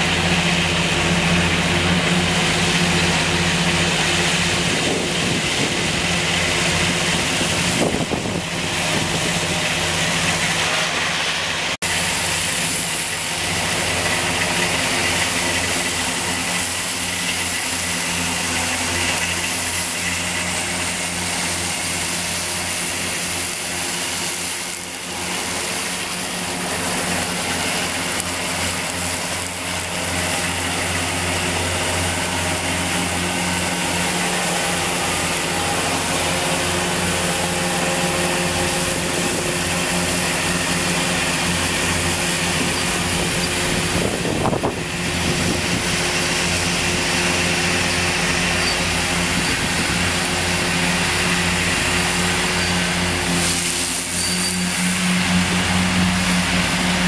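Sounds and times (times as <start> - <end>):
disc mowers hissing through grass: 0.0 - 57.0
tractor diesel engine hum: 0.0 - 57.0.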